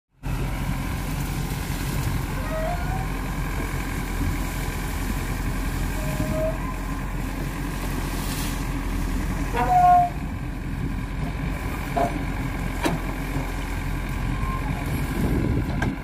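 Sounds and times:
backhoe diesel engine under load: 0.1 - 16.0.

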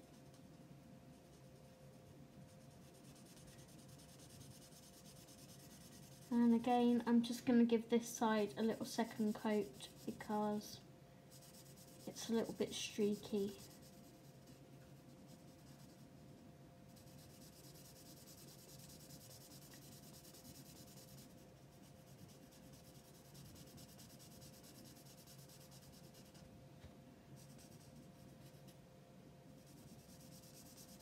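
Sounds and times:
faint steady hum: 0.0 - 31.0
marker scratching on paper: 2.6 - 6.4, 11.3 - 16.0, 16.9 - 26.4, 29.6 - 31.0.

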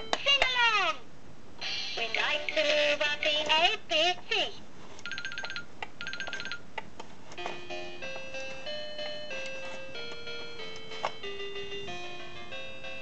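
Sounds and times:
toy beeping electronic melody: 5.1 - 6.6.

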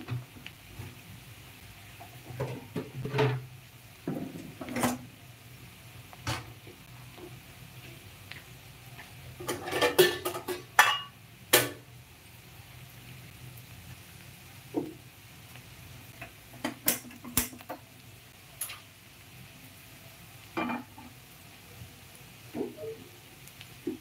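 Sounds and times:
metal utensils and pots clinking: 2.0 - 3.5, 4.1 - 5.1, 9.4 - 11.8, 20.6 - 21.1.

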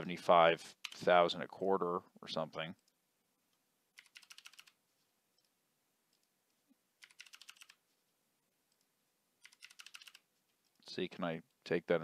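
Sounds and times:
typing on computer keyboard: 4.0 - 4.8, 7.0 - 7.8, 9.4 - 10.2.

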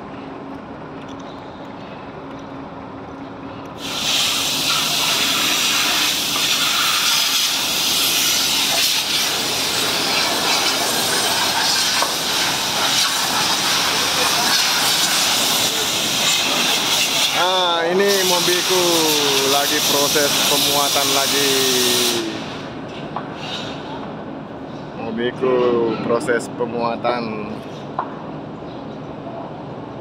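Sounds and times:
steady hum: 0.0 - 30.0
loud steady hiss: 3.8 - 24.0.

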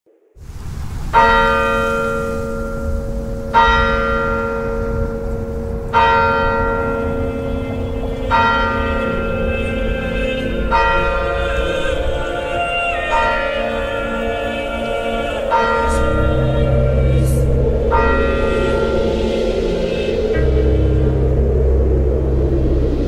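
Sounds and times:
low rumble: 0.4 - 23.0
church bell tolling: 1.1 - 22.2.

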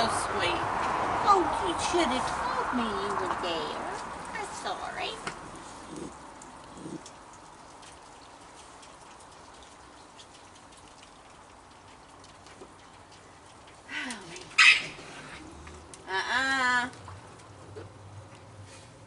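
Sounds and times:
raccoon growling: 5.4 - 7.3
raccoon squealing: 14.6 - 15.0.

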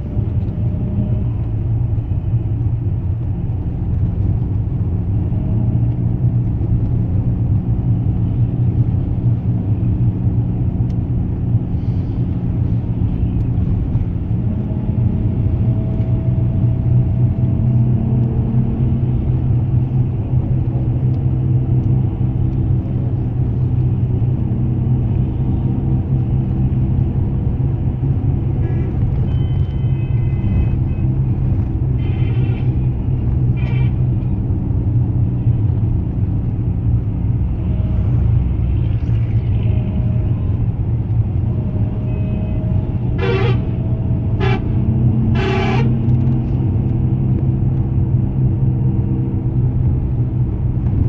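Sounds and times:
vehicle engine and road rumble: 0.0 - 51.0
car horn toots: 29.2 - 31.1, 33.6 - 34.0, 42.0 - 46.2.

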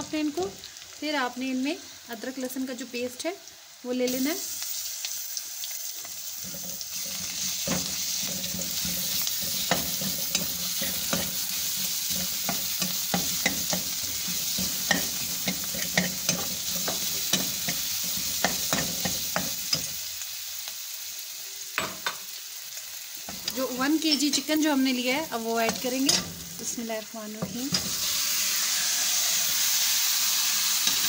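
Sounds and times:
onions sizzling in butter: 0.0 - 31.0
spatula clicking and scraping pan: 6.0 - 20.0, 25.5 - 26.4, 27.4 - 28.1, 30.8 - 31.0.

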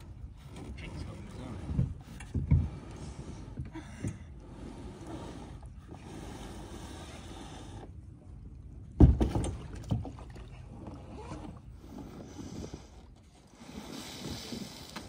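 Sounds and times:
water sloshing: 0.0 - 15.0
kayak hull knocking hollow: 9.0 - 10.0.

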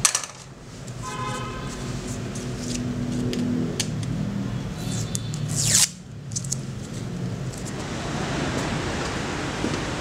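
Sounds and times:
tape ripping off a roll: 5.2 - 6.6
outdoor background hiss: 5.5 - 10.0.

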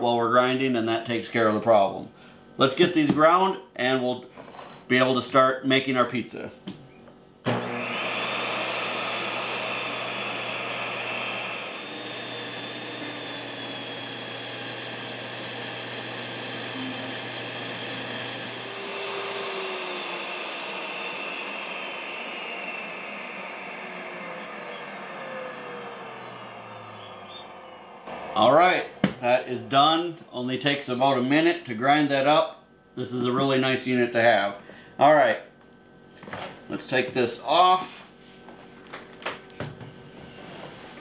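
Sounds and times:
electric grain mill running: 7.4 - 30.3.

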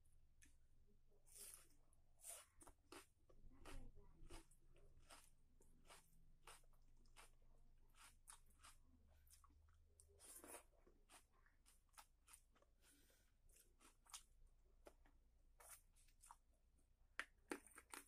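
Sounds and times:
fingers mixing rice: 1.3 - 12.7
chewing with wet smacks: 2.6 - 12.8.

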